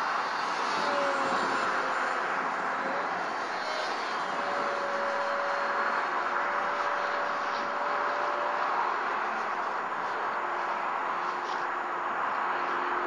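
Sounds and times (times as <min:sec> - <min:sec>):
model plane motor whine: 0:00.0 - 0:13.0.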